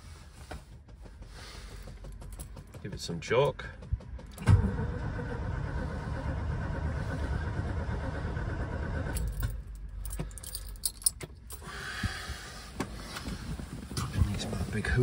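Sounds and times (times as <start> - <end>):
engine cranking on starter motor: 0.7 - 10.4
keys jangling: 9.2 - 11.6.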